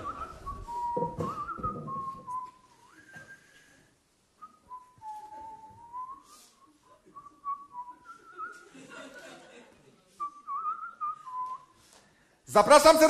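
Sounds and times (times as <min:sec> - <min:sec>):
man whistling a tune: 0:00.0 - 0:03.8, 0:04.4 - 0:08.7, 0:10.2 - 0:11.8.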